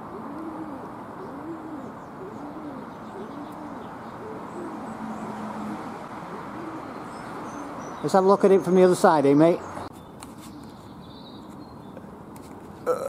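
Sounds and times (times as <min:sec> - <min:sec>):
pigeon cooing: 0:00.0 - 0:07.9.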